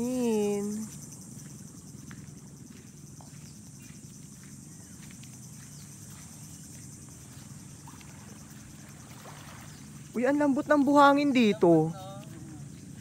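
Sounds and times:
insects trilling: 0.0s - 13.0s.

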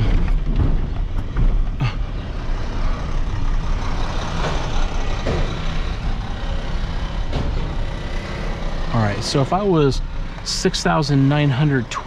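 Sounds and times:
truck engine running: 0.0s - 12.0s.

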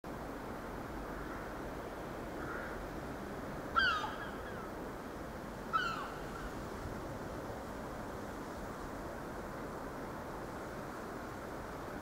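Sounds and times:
bird harsh calls: 3.8s - 4.7s, 5.7s - 6.5s.

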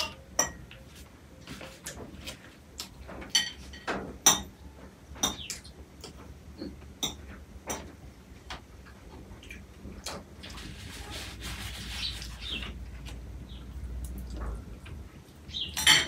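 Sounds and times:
forks clinking on plates: 3.3s - 4.6s, 15.7s - 16.0s.

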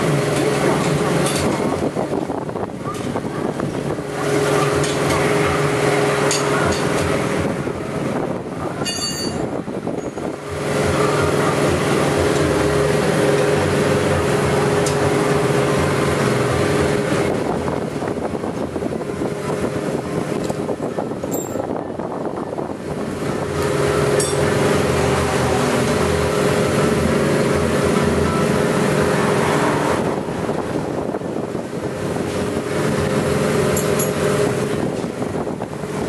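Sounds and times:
engine running with pitched hum: 0.0s - 36.0s.

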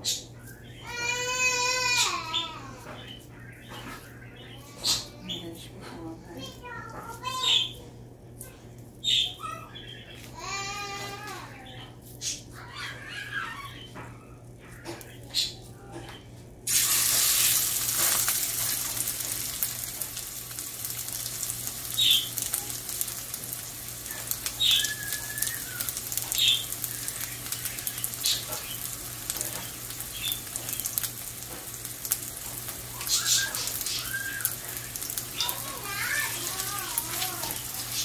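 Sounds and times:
food sizzling in hot oil: 16.7s - 38.0s.

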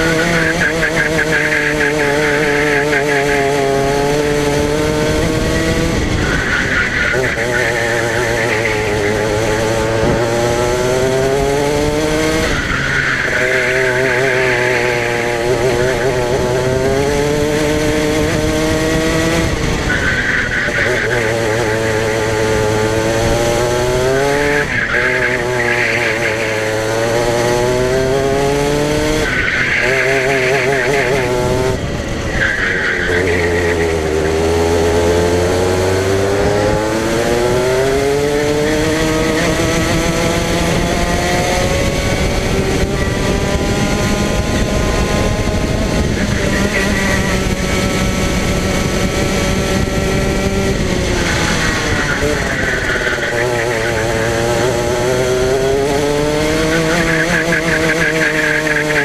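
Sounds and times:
tyre squeal: 0.0s - 10.3s, 12.0s - 17.2s, 19.6s - 23.2s, 23.9s - 27.6s, 28.2s - 31.6s, 32.2s - 35.7s, 50.8s - 59.0s
kart engine revving: 0.0s - 59.0s.

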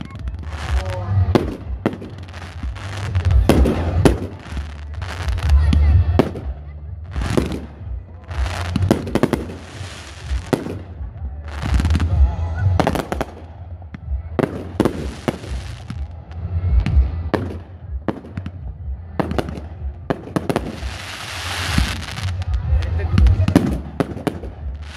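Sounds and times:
dense fireworks crackling: 0.0s - 24.9s
low rumble: 0.0s - 24.9s.

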